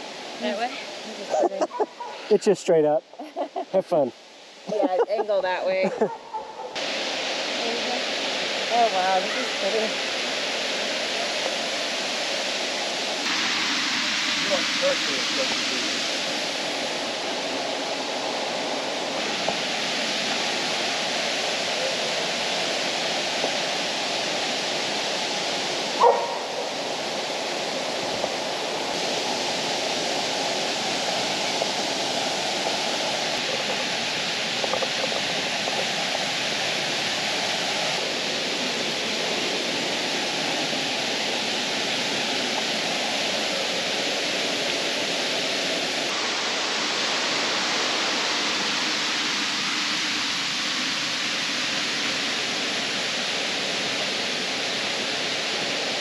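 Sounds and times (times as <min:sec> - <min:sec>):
waterfall rushing: 0:00.0 - 0:56.0
bark-like animal cry: 0:26.0 - 0:26.6.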